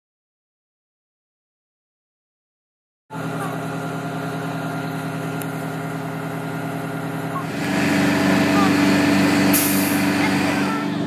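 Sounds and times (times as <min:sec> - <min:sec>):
fire truck diesel engine running: 0:03.1 - 0:11.0.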